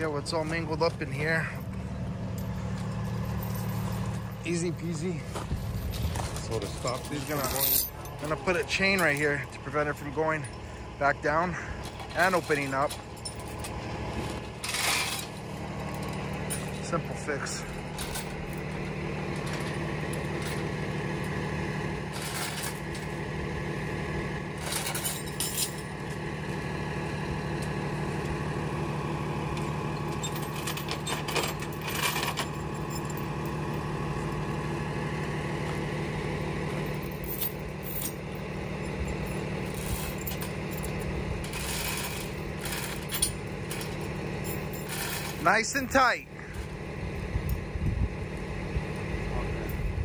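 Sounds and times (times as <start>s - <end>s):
truck engine idling: 0.0s - 50.0s
steel chain clinking and rattling: 0.4s - 23.4s, 24.5s - 26.2s, 29.6s - 34.7s, 36.6s - 46.7s.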